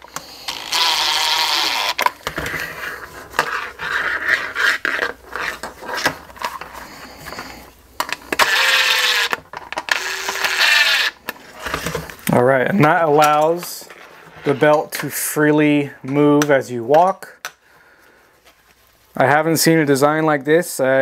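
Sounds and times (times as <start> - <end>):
cordless driver running: 0.0 - 2.0, 8.3 - 11.2.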